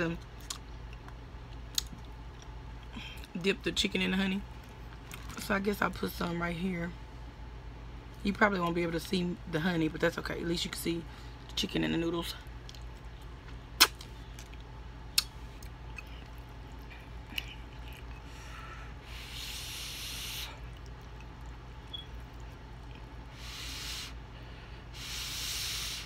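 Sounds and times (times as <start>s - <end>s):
chewing: 0.3s - 3.3s, 4.5s - 5.4s, 12.4s - 18.3s, 20.6s - 23.2s.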